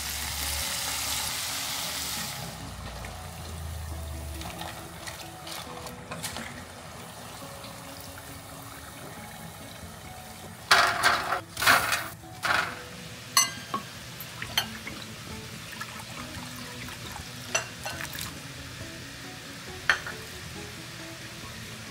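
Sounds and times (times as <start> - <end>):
hot oil bubbling: 0.0 - 21.9
metal scraping and clattering: 10.7 - 12.8.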